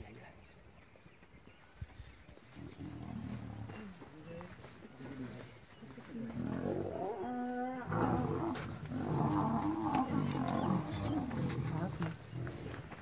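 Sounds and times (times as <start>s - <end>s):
lions snarling and growling: 6.1s - 13.0s.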